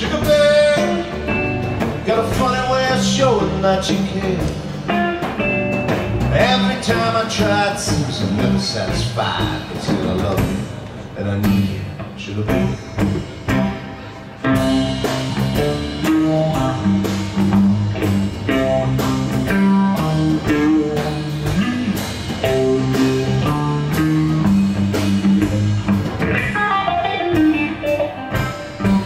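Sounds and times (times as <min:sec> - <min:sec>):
electric guitar playing single notes: 0:00.0 - 0:08.5, 0:10.1 - 0:29.0
bass guitar: 0:00.0 - 0:29.0
drum kit with cymbals: 0:00.0 - 0:29.0.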